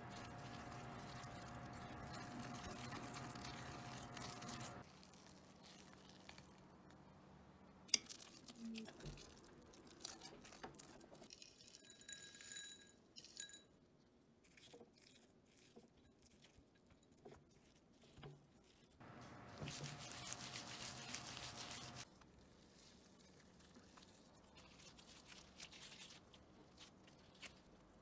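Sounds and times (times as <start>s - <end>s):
utensils scraping a glass bowl: 0.0s - 4.8s.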